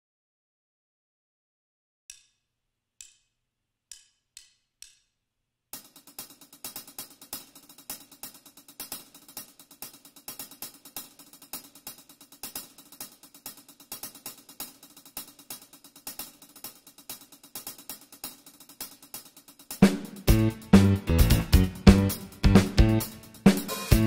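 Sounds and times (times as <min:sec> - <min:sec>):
band playing instrumental music: 0:19.8 - 0:24.0.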